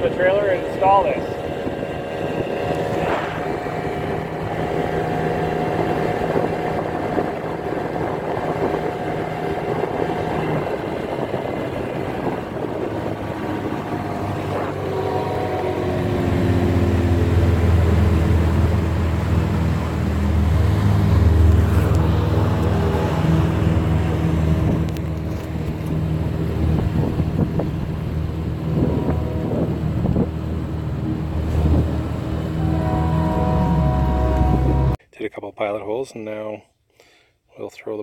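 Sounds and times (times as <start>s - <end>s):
outboard motor running: 0.0s - 35.0s.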